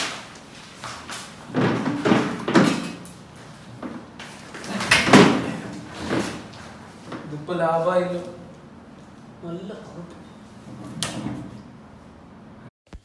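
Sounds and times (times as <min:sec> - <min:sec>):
knocks and thumps: 0:01.5 - 0:03.0, 0:04.8 - 0:06.4
door slamming: 0:04.7 - 0:06.5.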